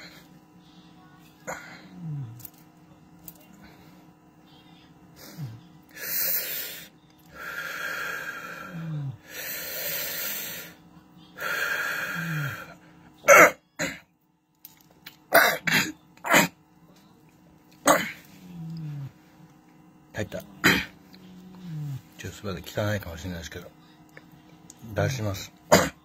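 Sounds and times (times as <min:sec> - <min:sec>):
man coughing and hacking: 0:13.3 - 0:14.1, 0:15.3 - 0:16.6, 0:17.8 - 0:18.3, 0:20.6 - 0:20.9, 0:25.7 - 0:26.0.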